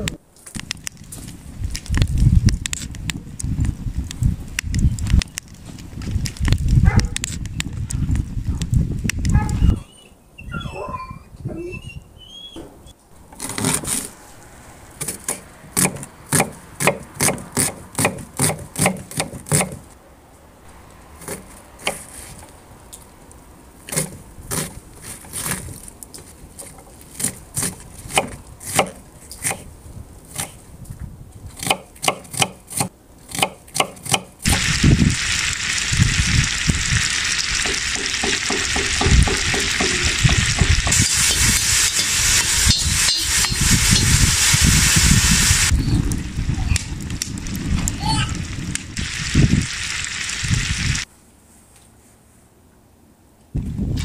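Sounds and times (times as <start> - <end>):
onion sizzling in hot oil: 34.4 - 51.1
knife chopping on wooden board: 37.6 - 41.0.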